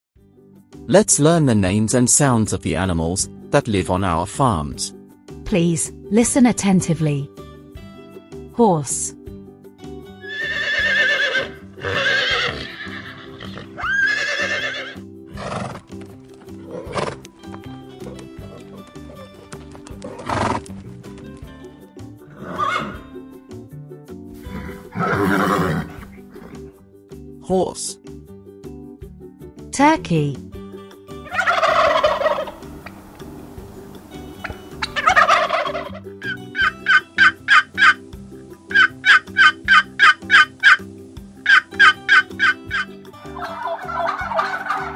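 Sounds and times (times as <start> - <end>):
background music: 0.2 - 44.9
horse whinnying: 10.2 - 16.0, 16.6 - 17.3, 18.0 - 20.7, 22.2 - 23.2, 24.4 - 26.7
turkey gobbling: 31.2 - 33.2, 34.0 - 38.0, 38.7 - 40.8, 41.4 - 44.9.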